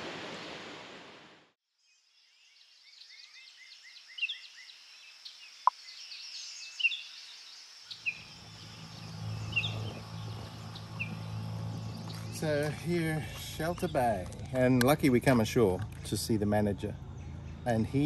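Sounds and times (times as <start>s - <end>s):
birds chirping: 1.9s - 18.0s
steady low hum: 8.1s - 18.0s.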